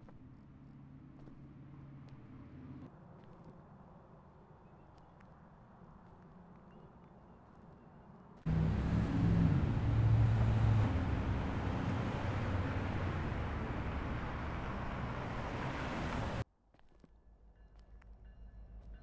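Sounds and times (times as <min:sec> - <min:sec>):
vehicle engine drone: 0:00.6 - 0:02.9, 0:08.5 - 0:16.4
road noise hiss: 0:08.5 - 0:16.4.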